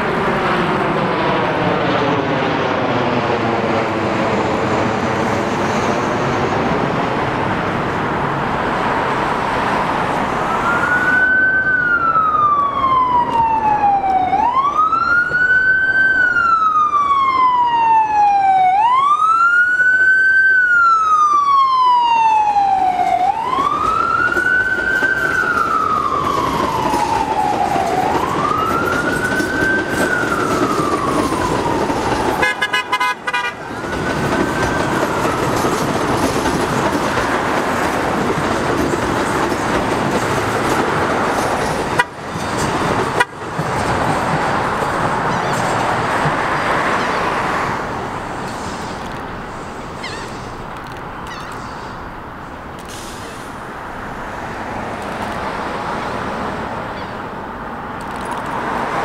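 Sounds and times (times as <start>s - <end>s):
subway train running: 0.0s - 59.0s
siren wailing: 10.0s - 38.4s, 45.0s - 48.2s.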